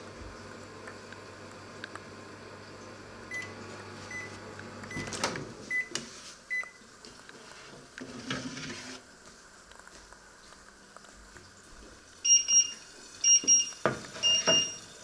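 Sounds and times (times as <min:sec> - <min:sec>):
microwave oven humming: 0:00.0 - 0:07.0, 0:12.2 - 0:15.0.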